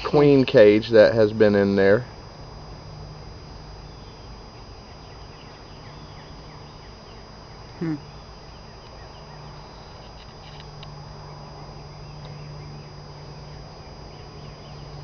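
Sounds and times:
honey bees buzzing: 0.0s - 15.0s
person vocal sound: 7.8s - 8.0s.

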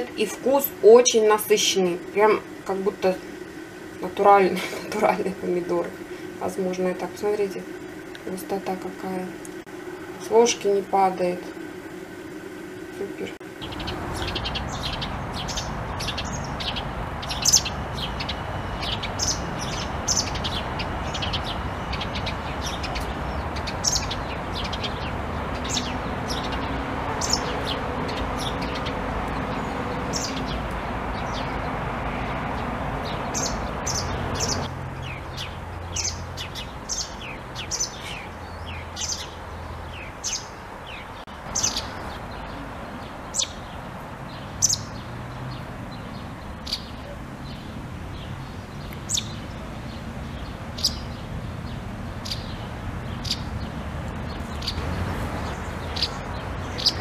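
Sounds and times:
steady rushing background noise: 0.0s - 57.0s
small songbirds chirping: 12.7s - 57.0s.

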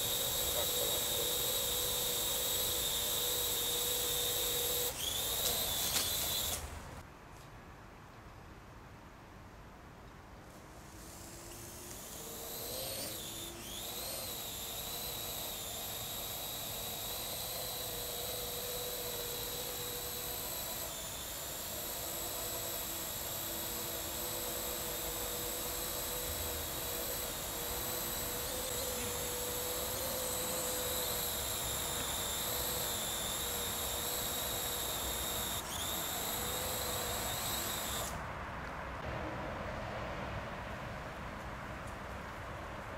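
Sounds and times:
drone rotors whining: 0.0s - 6.8s, 10.9s - 38.2s.

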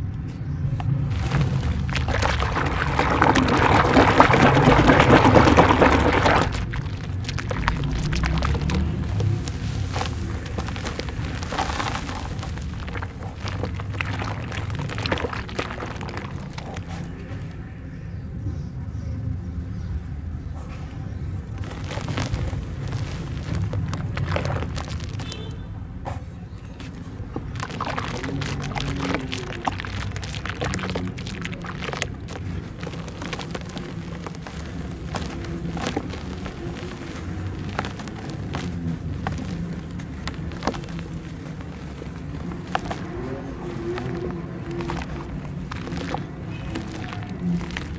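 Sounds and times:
quick crackles: 0.7s - 17.7s, 21.3s - 47.9s
water sloshing in basin: 0.8s - 17.5s, 21.4s - 25.6s, 26.7s - 47.9s
wet squelching and splashing: 0.8s - 17.6s, 21.4s - 25.7s, 26.6s - 47.9s.

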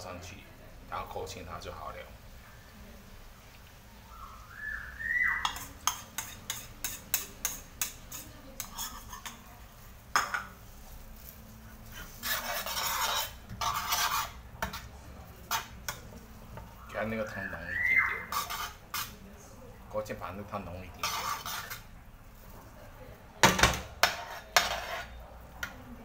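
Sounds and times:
metal ladle stirring in a pan: 5.3s - 26.0s
metal spoon scraping a bowl: 5.4s - 9.5s, 11.2s - 16.7s, 18.2s - 19.2s, 20.9s - 22.0s, 24.0s - 25.8s.

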